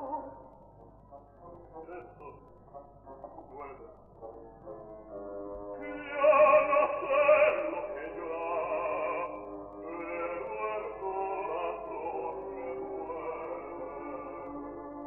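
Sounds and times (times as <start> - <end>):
operatic singing with orchestra: 5.7 - 15.0.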